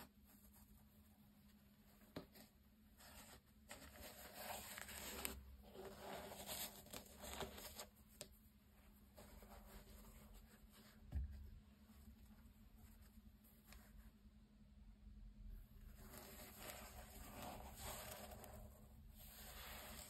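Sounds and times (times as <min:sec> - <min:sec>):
gloved hands rustling a sneaker: 0:15.9 - 0:20.0.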